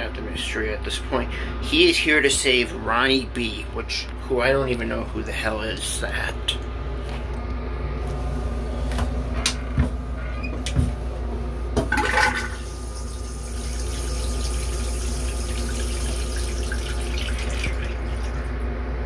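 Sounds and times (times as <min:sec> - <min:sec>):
constant low hum: 0:00.0 - 0:19.0
toilet flushing rush: 0:11.9 - 0:18.6.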